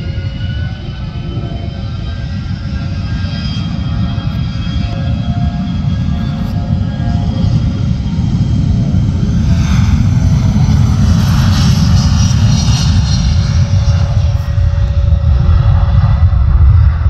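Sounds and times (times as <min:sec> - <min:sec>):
jet engines roaring: 0:00.0 - 0:17.0.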